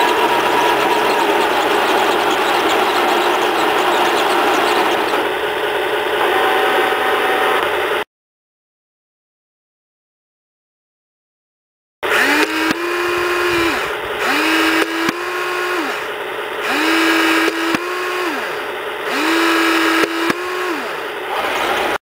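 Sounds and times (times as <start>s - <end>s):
small electric motor whining: 0.0s - 6.4s, 12.0s - 22.0s.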